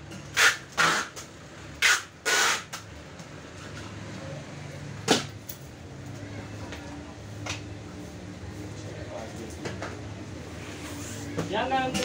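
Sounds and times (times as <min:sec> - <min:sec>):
packing tape tearing off roll: 0:00.4 - 0:02.8.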